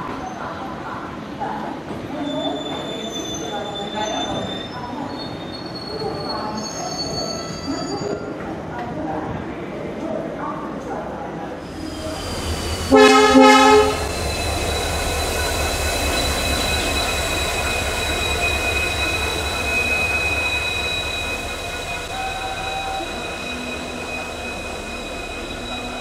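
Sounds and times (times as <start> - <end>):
high-pitched wheel squeal: 2.3 - 8.3, 11.7 - 26.0
locomotive horn blast: 12.8 - 14.2.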